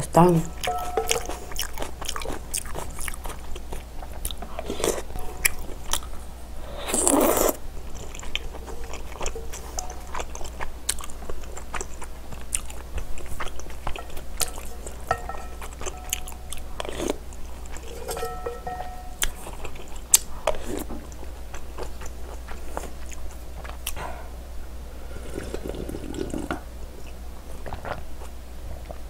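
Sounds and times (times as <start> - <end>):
spoon scraping in a bowl: 0.6 - 1.6, 8.3 - 10.5, 13.8 - 17.1, 17.7 - 19.2
chewing food: 0.6 - 24.1.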